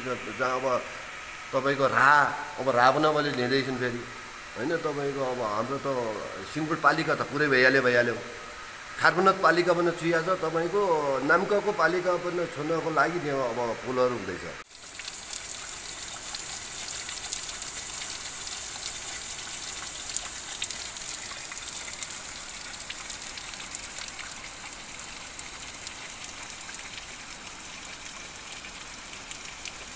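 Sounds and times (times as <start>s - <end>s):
flowing water rushing: 0.0s - 29.9s.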